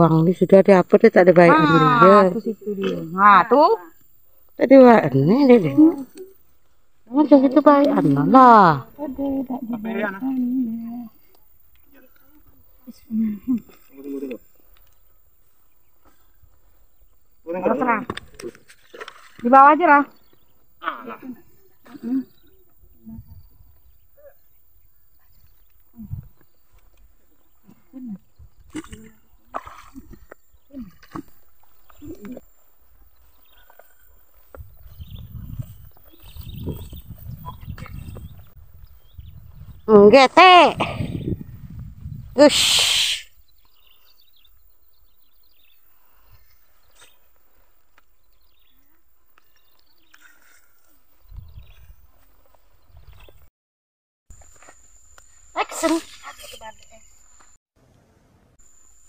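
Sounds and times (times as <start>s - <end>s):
people grunting and murmuring: 7.9s - 14.6s, 20.8s - 23.5s, 27.6s - 32.5s
high short chirping calls: 42.4s - 44.6s.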